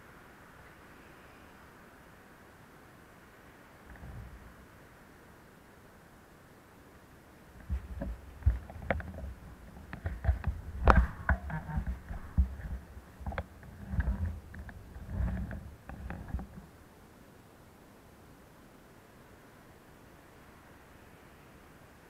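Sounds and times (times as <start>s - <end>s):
bicycle knocks and rattles: 7.6s - 16.7s.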